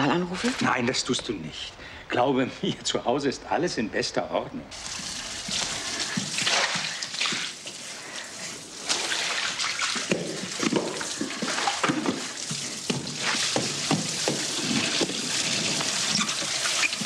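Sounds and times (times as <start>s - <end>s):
water splashing on floor: 4.7s - 17.0s
water spraying from tap: 4.7s - 17.0s.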